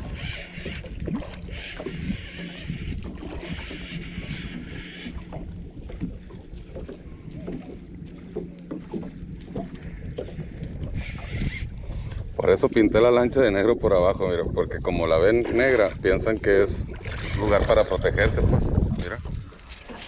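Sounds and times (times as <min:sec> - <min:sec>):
steady low hum: 0:00.0 - 0:12.4
water slapping boat hull: 0:00.0 - 0:20.0.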